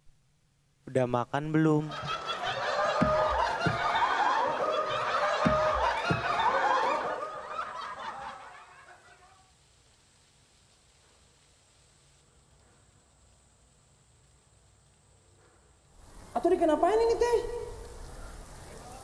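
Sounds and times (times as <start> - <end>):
audience laughing: 1.8 - 9.5
low thumps: 2.8 - 4.2, 5.1 - 6.5.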